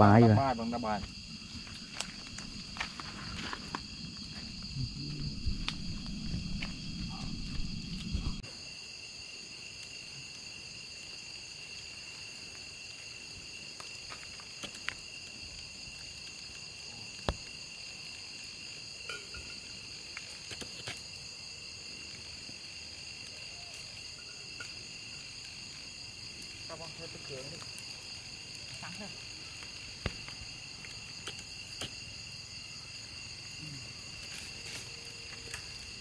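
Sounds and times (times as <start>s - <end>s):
night insects chorus: 0.0s - 36.0s
low rumbling noise: 4.6s - 8.4s.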